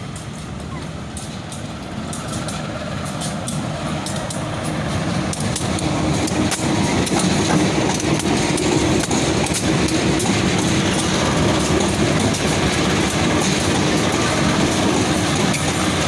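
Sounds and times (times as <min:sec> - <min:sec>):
locomotive engines running loudly: 0:00.0 - 0:16.0
wheels clicking on rails: 0:00.0 - 0:16.0.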